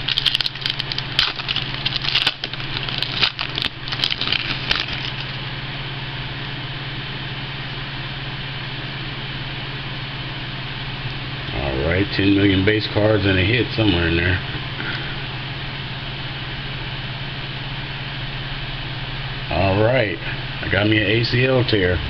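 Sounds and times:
wrapper crinkling and tearing: 0.0 - 5.4
low hum: 0.0 - 22.0.

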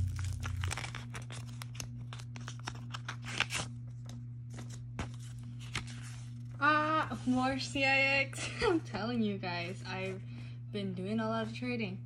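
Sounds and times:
blade cutting paper envelope: 0.0 - 6.6.

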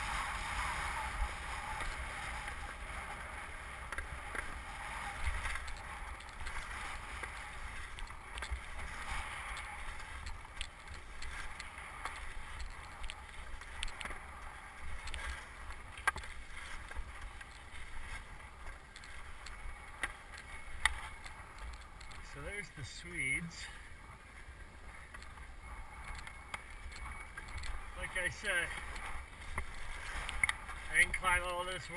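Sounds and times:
skis scraping over snow: 0.0 - 31.9.

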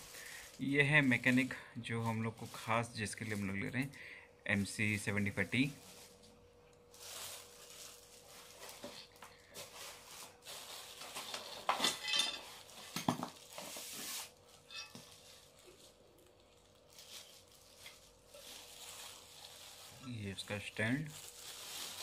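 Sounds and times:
faint steady hum: 0.0 - 22.0
plastic wrapping crinkling: 0.0 - 22.0
knocks and clinks: 11.7 - 13.2.

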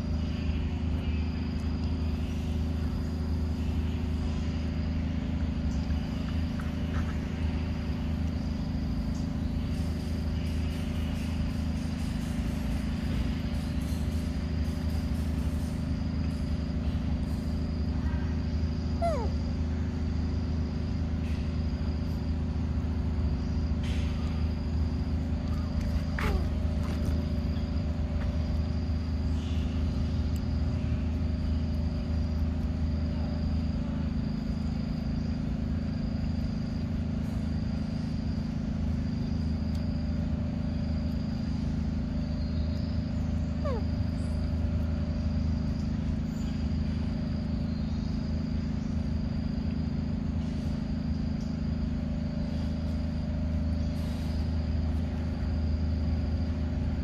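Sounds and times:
insect chirping: 0.0 - 57.0
steady low hum: 0.0 - 57.0.

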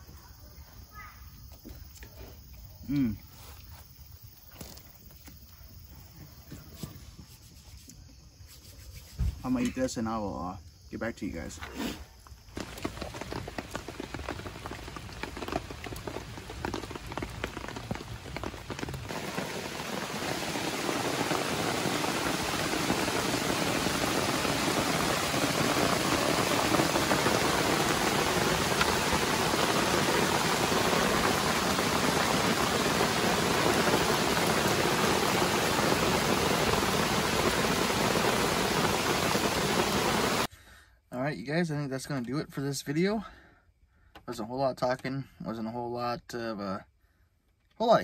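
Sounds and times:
rain falling: 12.4 - 40.5.

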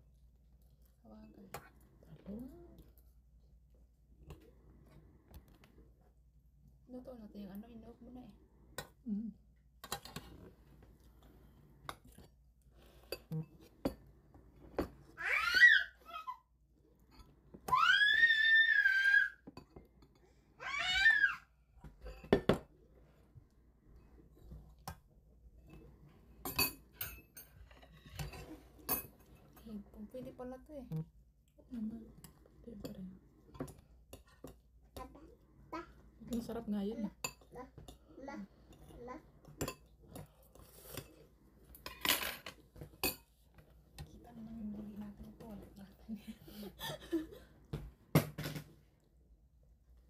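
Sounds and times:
cutlery clinking on steel bowls: 9.8 - 10.5, 11.8 - 15.1, 21.8 - 22.7, 25.6 - 30.3, 32.2 - 35.1, 37.1 - 44.2
spoons clinking against pot and bowls: 26.4 - 29.6, 39.5 - 41.2, 41.8 - 43.3.

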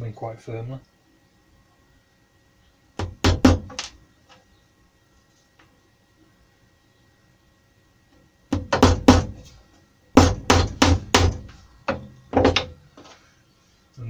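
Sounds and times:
hammer blows on nails: 10.2 - 11.6.

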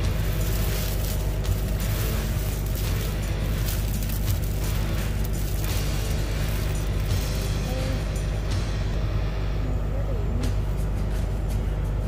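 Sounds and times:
plastic bag crinkling: 0.0 - 8.3
steady low hum: 0.0 - 12.0.

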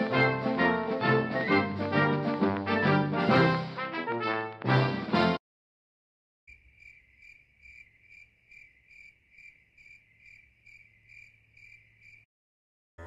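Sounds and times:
crickets chirping: 6.5 - 12.3.

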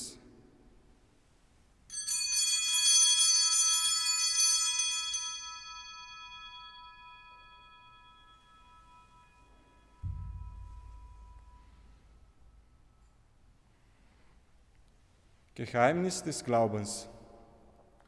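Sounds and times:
altar bells ringing: 1.9 - 14.1.

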